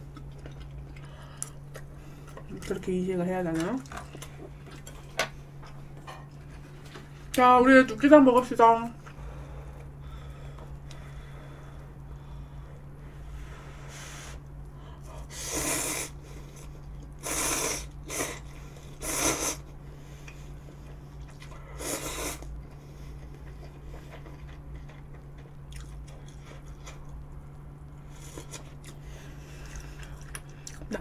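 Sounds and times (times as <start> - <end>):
person chewing: 0.0 - 2.7, 3.8 - 7.1, 15.4 - 30.9
steady low hum: 0.0 - 31.0
person slurping noodles: 15.3 - 16.2, 17.2 - 18.4, 19.0 - 19.6.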